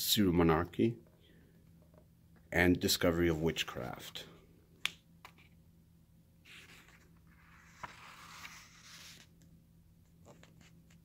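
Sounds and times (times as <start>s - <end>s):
book page rustling: 6.5s - 9.3s, 10.1s - 11.0s.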